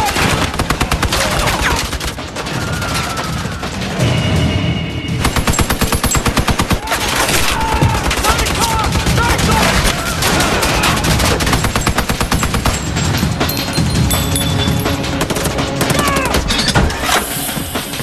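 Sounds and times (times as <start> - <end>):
machine gun firing bursts: 0.0 - 3.6, 5.2 - 13.4.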